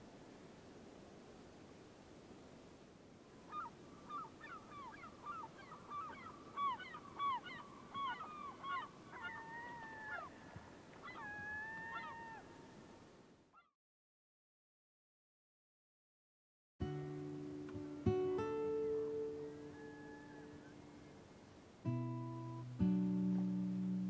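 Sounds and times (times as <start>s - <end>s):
birds calling: 3.5s - 12.5s, 19.3s - 21.2s.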